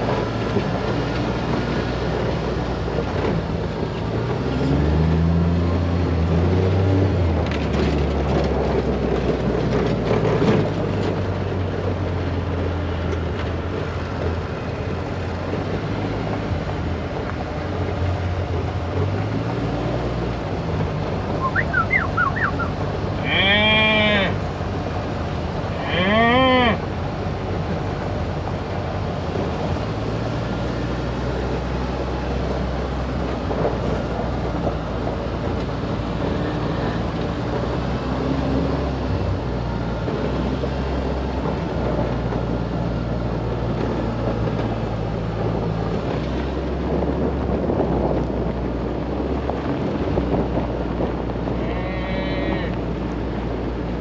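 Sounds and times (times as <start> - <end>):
tyres on gravel road: 0.0 - 54.0
utility vehicle engine droning: 0.0 - 54.0
cow mooing: 23.2 - 24.4, 25.7 - 26.8, 51.6 - 52.8.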